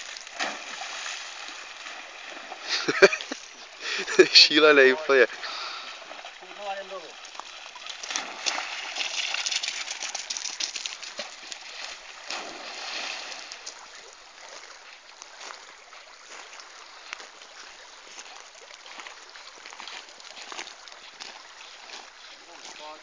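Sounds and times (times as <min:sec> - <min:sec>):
dog splashing through water: 0:00.0 - 0:02.7, 0:06.0 - 0:14.8
flowing water: 0:00.0 - 0:23.0.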